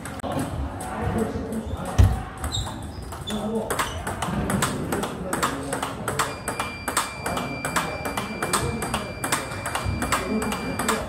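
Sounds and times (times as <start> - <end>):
ping-pong ball clicks: 2.4 - 11.0.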